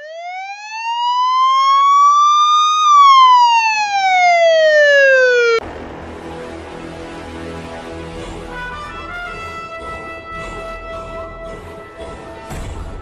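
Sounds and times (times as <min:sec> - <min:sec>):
siren wail: 0:00.0 - 0:05.6, 0:08.3 - 0:13.0
background music: 0:05.6 - 0:13.0.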